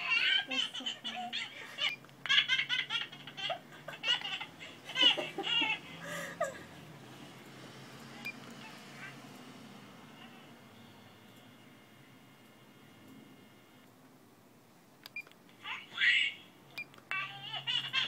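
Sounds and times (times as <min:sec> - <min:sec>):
babies laughing through speaker: 0:00.0 - 0:06.8, 0:17.1 - 0:18.0.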